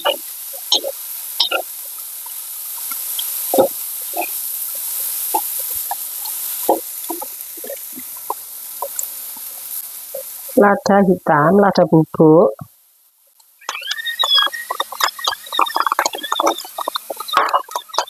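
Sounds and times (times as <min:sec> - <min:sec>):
rice sizzling in a wok: 0:00.0 - 0:10.7, 0:12.7 - 0:18.0.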